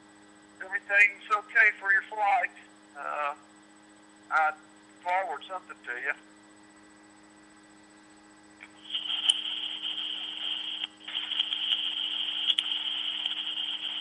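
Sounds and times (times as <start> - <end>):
sharp clicks: 8.6 - 14.0
scratchy rustling through phone speaker: 8.8 - 14.0.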